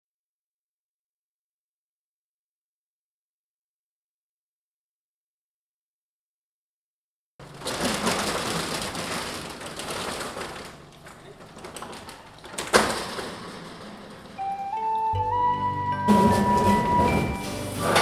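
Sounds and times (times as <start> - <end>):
metal roller shutter rattling: 7.4 - 15.1, 16.0 - 18.0.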